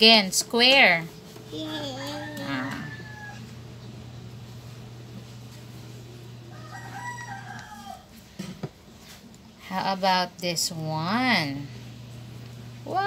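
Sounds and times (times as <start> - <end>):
steady low hum: 0.0 - 6.7, 7.3 - 13.0
rooster crowing: 1.9 - 3.8, 6.4 - 8.2.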